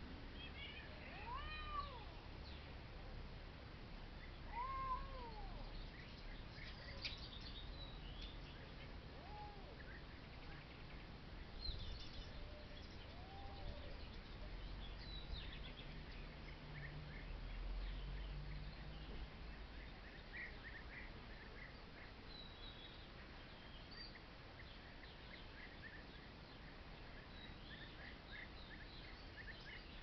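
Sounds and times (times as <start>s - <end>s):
cat meowing: 0.5s - 2.2s, 4.5s - 5.6s
birds chirping: 4.0s - 30.0s.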